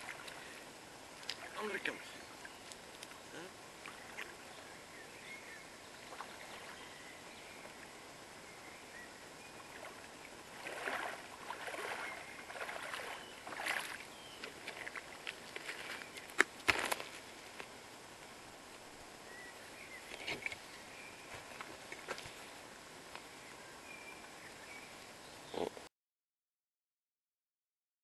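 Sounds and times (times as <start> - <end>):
boots wading through water: 0.0 - 1.6, 5.9 - 6.9, 9.6 - 17.3
water splashing: 0.0 - 2.1, 3.8 - 4.5, 6.0 - 6.9, 9.6 - 17.0
river flowing: 0.0 - 20.0
pebbles clicking underfoot: 15.2 - 17.7.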